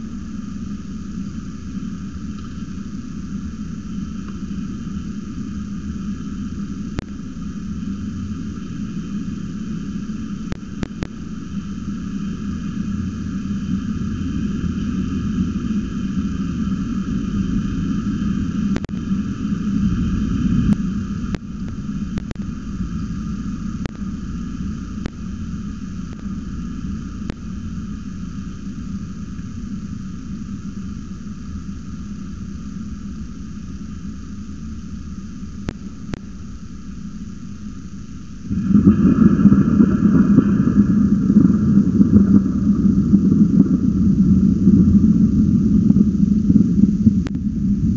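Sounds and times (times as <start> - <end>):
steady rain hiss: 0.0 - 47.9
low rumble: 38.4 - 47.9
thunder rolling: 38.5 - 46.9.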